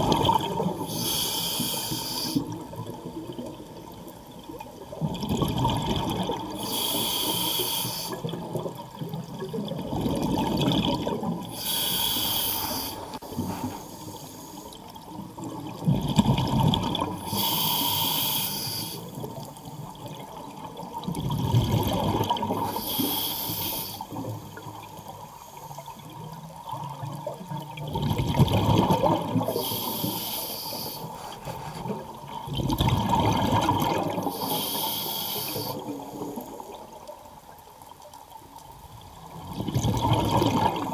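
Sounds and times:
bubbles rumbling out underwater: 0.0 - 0.9, 2.4 - 6.6, 8.2 - 11.6, 15.1 - 17.3, 19.2 - 22.6, 26.0 - 29.6, 32.0 - 34.4, 38.8 - 40.9
regulator air hiss: 0.9 - 2.4, 6.6 - 8.2, 11.6 - 14.7, 17.3 - 19.0, 22.7 - 24.0, 29.5 - 31.2, 34.3 - 35.8.

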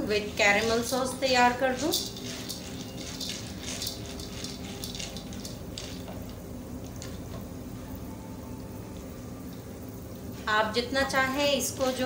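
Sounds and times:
kernels scraping and clicking on pan: 0.5 - 6.4.

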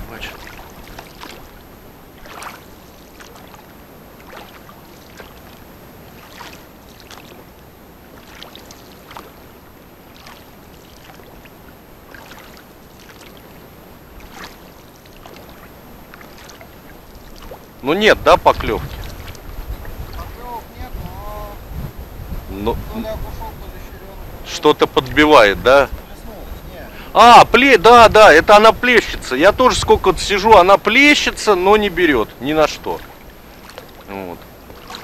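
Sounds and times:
oars splashing in water: 0.0 - 20.6, 27.9 - 35.0.

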